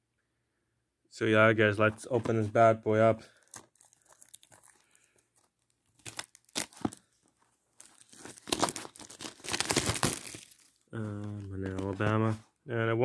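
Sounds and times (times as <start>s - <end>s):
plastic wrap tearing and crinkling: 3.3s - 7.2s, 7.8s - 12.1s.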